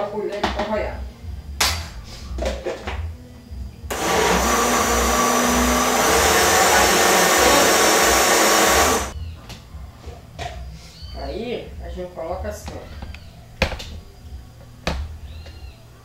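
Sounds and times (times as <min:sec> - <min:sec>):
electric blender running: 0:03.9 - 0:09.2.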